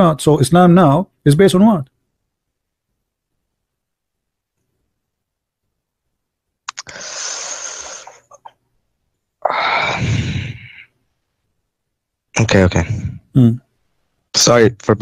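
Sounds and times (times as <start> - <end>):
small mouth clicks: 6.6 - 8.6
person sighing: 9.4 - 10.9.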